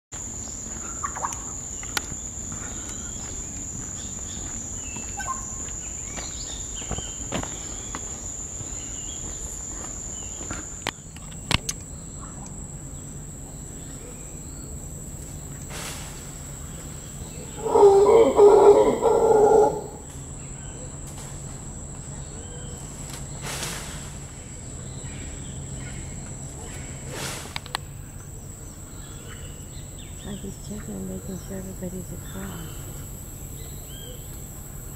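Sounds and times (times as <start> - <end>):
high-pitched insect drone: 0.2 - 23.4
bird chirps: 0.5 - 14.8
loud animal call: 17.3 - 20.1.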